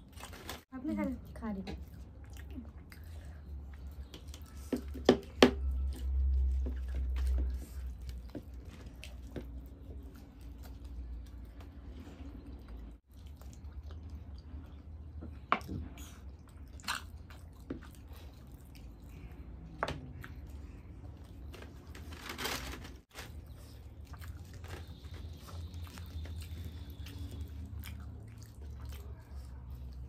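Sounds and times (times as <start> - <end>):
chewing and mouth smacks: 5.7 - 21.4, 23.5 - 30.0.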